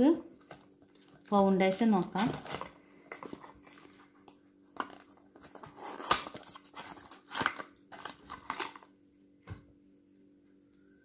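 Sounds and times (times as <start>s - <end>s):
cardboard carton rustling: 5.4s - 8.6s.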